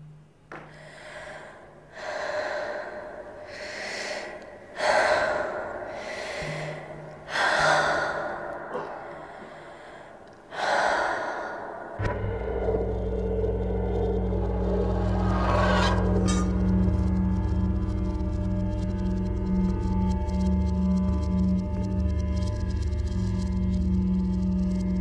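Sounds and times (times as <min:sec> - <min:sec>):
woman breathing heavily: 0:00.6 - 0:12.2.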